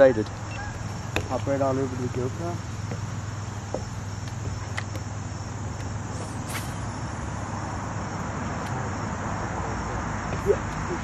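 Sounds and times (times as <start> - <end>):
faint insect hum: 0.0 - 11.0.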